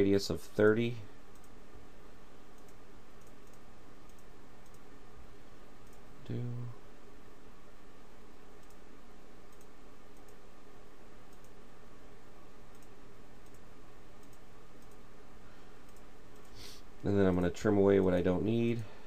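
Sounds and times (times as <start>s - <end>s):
background hiss and hum: 0.0s - 19.0s
computer mouse clicks: 1.3s - 1.6s, 2.5s - 4.9s, 5.8s - 6.0s, 8.6s - 8.8s, 9.5s - 10.4s, 11.3s - 11.6s, 12.7s - 15.0s, 15.8s - 16.6s.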